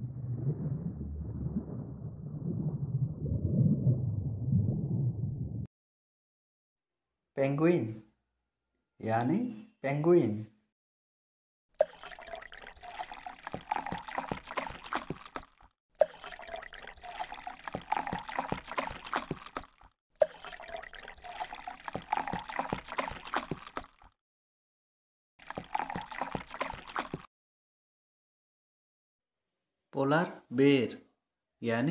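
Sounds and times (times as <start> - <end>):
water splashing and sloshing: 0.0 - 5.4, 11.8 - 24.2, 25.4 - 27.3.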